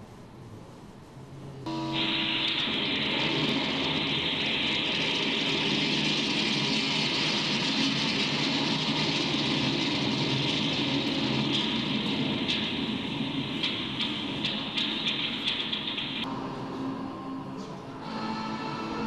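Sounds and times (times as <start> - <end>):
rocket engines roaring: 1.7 - 18.3.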